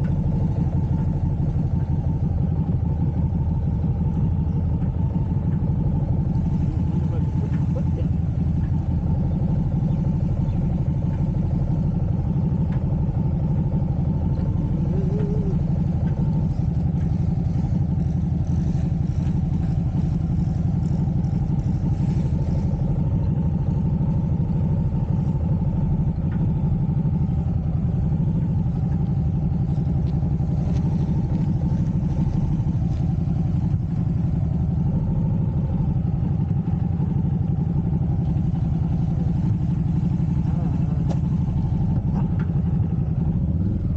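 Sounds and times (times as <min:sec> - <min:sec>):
motorcycle engine at low revs: 0:00.0 - 0:43.9.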